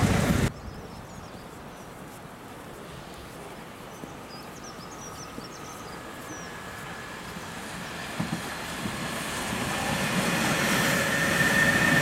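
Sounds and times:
faint high train whine: 0.0 - 12.0
low outdoor background hum: 0.4 - 10.0
small birds chirping: 0.5 - 2.2, 2.9 - 7.7.

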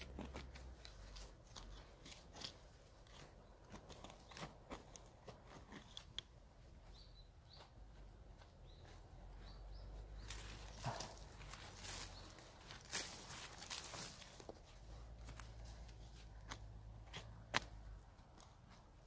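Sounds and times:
rustling crunch of dry grass: 0.0 - 6.1, 6.8 - 19.0
hand tool digging stony soil: 0.0 - 6.5, 10.2 - 19.0
bird chirps: 6.8 - 7.8, 8.4 - 11.2.

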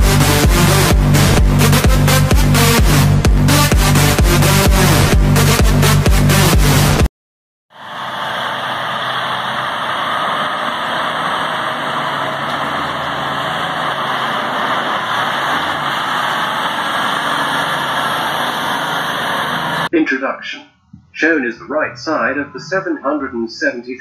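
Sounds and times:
diesel truck driving past on gravel: 7.8 - 19.9.

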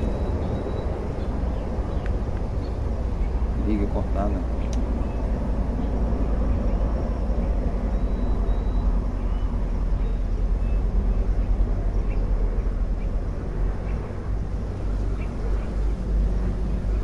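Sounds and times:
faint high chirps: 0.0 - 1.4, 6.7 - 10.9
wind buffeting microphone: 0.0 - 17.0.

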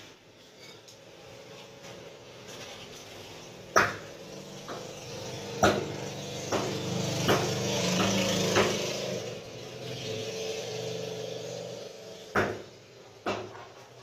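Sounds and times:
cleaver chopping on wooden block: 3.7 - 4.1, 5.6 - 5.9, 6.5 - 8.9, 12.3 - 13.6.

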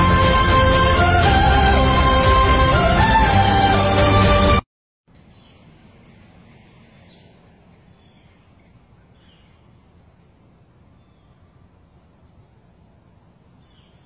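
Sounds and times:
loud music: 0.0 - 4.6
small birds chirping: 5.1 - 14.0.

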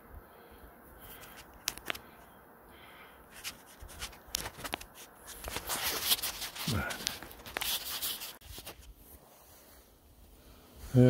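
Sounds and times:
footsteps crunching on snow: 3.3 - 9.2.

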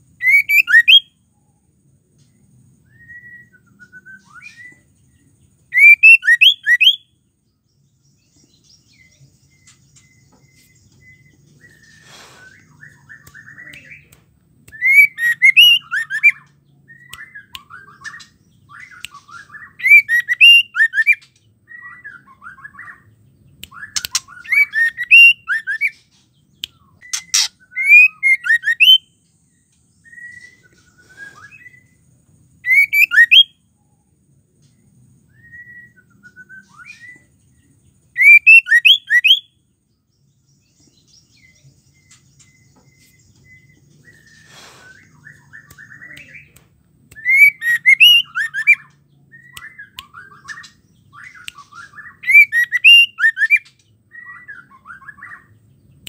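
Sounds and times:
bird singing whistled notes: 0.0 - 56.0
sharp clicks: 23.6 - 24.6
bird chattering: 27.1 - 28.9.

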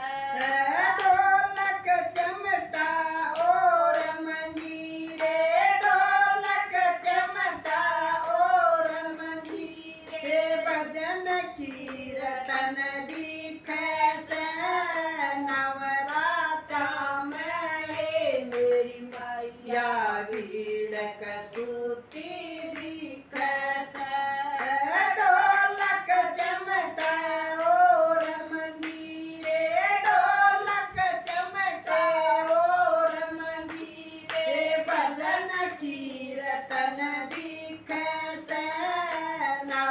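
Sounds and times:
women singing together: 0.0 - 39.9
hand claps: 0.3 - 39.9.

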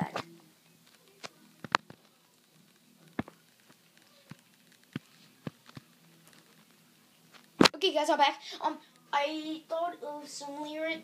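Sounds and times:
faint irregular clicks and taps: 0.8 - 7.6.

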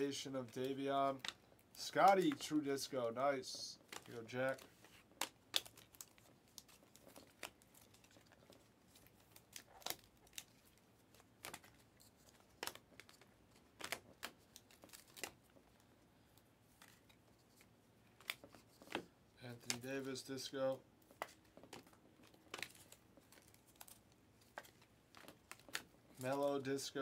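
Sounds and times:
cards being flipped through: 0.4 - 2.9, 3.5 - 15.5, 16.7 - 20.2, 21.0 - 26.8.

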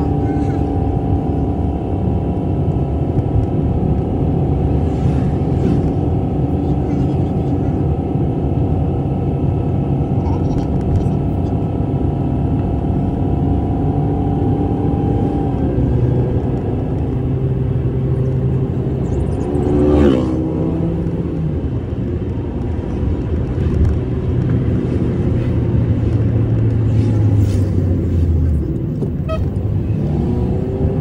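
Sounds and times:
car engine and tyre rumble: 0.0 - 31.0
vehicle passing close by: 18.7 - 21.3.

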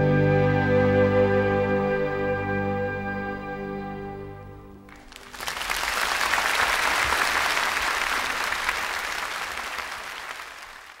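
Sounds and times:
audience applause: 4.9 - 11.0.

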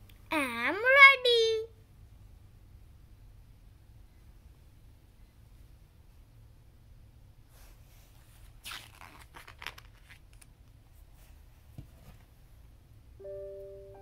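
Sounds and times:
paper pages turning: 8.4 - 10.5.

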